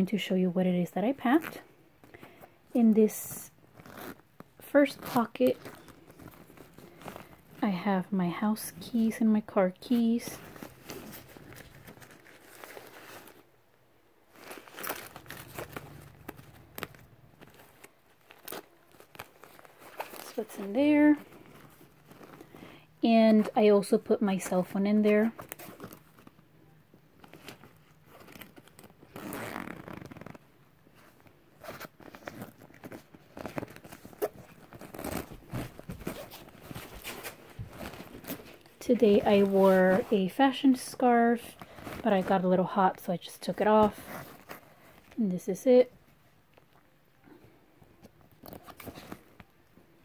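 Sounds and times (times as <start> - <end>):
nylon backpack fabric rustling: 0.8 - 13.6, 14.2 - 26.5, 27.1 - 45.2, 48.3 - 49.5
zipper rasping open: 1.2 - 1.7, 3.3 - 7.6, 14.3 - 22.8, 25.0 - 26.4, 27.2 - 40.3, 41.5 - 42.3, 43.8 - 45.2
zipper clicks: 3.7 - 7.5, 27.2 - 30.4, 31.6 - 40.1.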